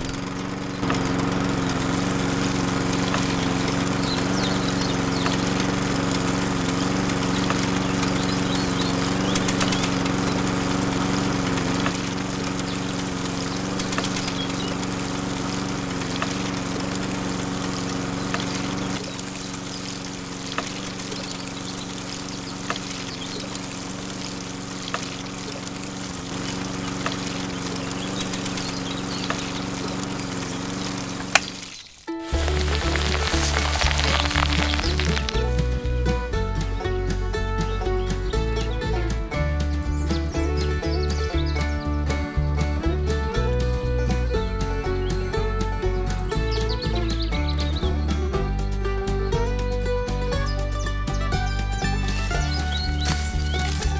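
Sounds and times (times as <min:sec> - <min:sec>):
toy water pump motor humming: 0:00.0 - 0:36.0, 0:51.3 - 0:53.9
water pouring onto wet sand: 0:00.1 - 0:35.7, 0:52.0 - 0:53.9.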